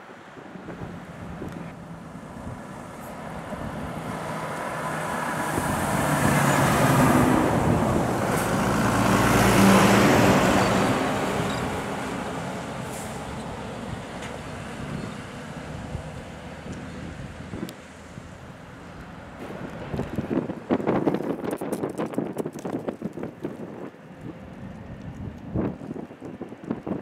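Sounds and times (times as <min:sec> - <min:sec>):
diesel truck driving past: 0:00.0 - 0:20.9.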